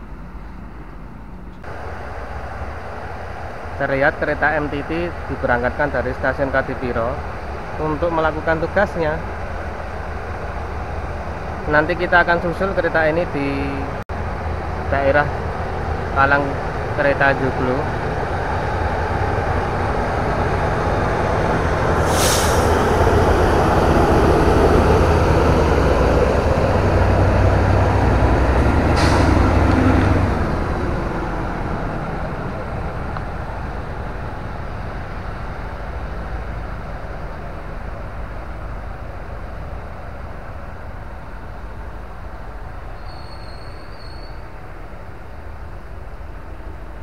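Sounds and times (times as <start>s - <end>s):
diesel engines rumbling: 0.0s - 47.0s
short air hisses: 22.0s - 22.9s, 29.0s - 29.5s.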